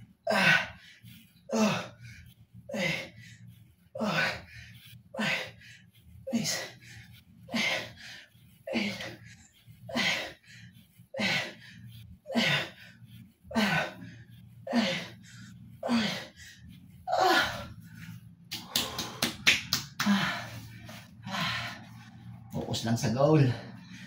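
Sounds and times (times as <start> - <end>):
sharp slaps: 18.5 - 20.2.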